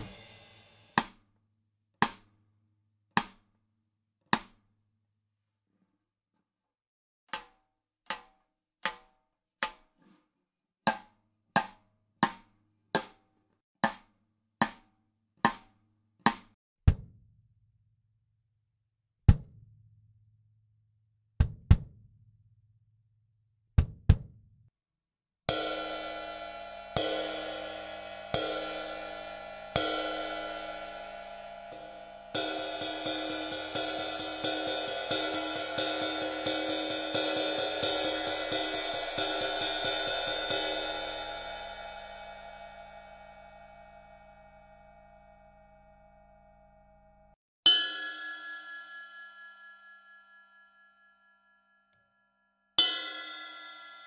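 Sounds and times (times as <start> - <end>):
kick drum hits: 21.4 - 22.0, 23.8 - 24.4.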